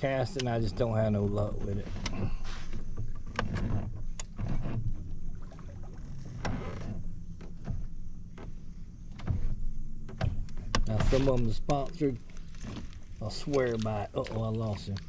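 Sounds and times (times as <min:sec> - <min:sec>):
light knocks and clicks: 0:06.3 - 0:15.0.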